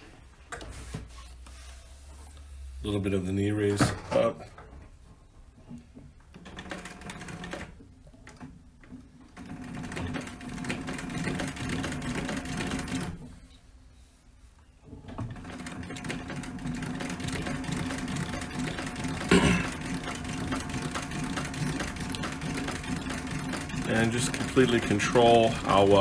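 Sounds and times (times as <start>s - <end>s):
sewing machine stitching leather: 6.3s - 13.3s, 14.9s - 26.0s.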